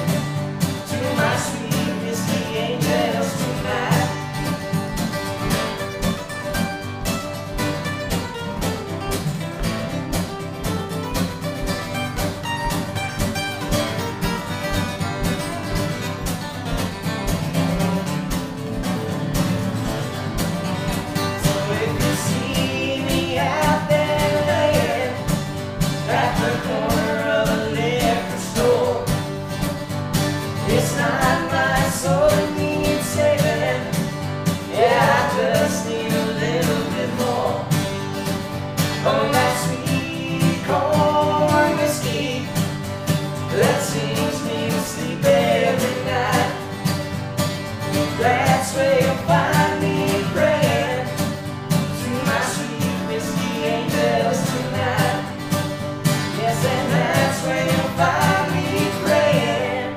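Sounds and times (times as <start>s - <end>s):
acoustic guitars strumming: 0.0s - 59.9s
man singing: 0.8s - 4.7s, 21.3s - 29.4s, 30.5s - 38.0s, 38.9s - 47.0s, 48.0s - 59.9s.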